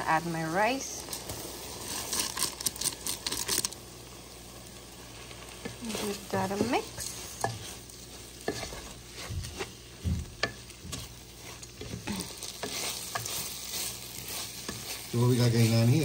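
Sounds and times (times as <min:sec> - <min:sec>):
rice and vegetables sizzling: 0:00.0 - 0:16.0
utensil scraping and knocking pan: 0:08.4 - 0:15.7.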